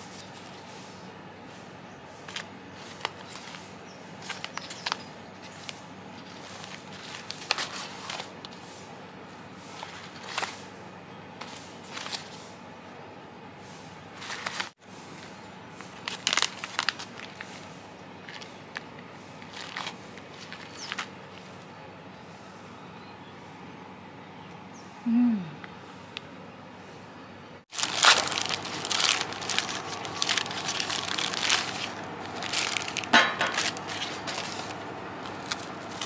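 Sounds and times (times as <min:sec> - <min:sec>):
plastic and bubble wrap crinkling: 0:02.2 - 0:08.6, 0:09.7 - 0:10.7, 0:11.4 - 0:12.5, 0:14.2 - 0:21.6, 0:27.7 - 0:36.0.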